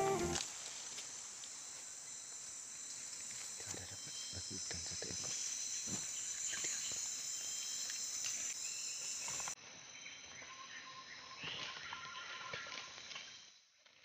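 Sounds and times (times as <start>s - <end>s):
leaf litter rustling: 0.0s - 1.9s
insects droning: 0.0s - 13.8s.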